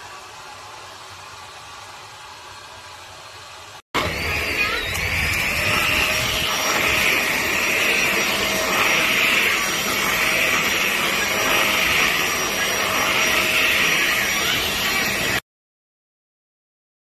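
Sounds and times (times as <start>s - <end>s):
handheld vacuum cleaner running: 4.0s - 15.4s
high whine: 4.0s - 15.4s.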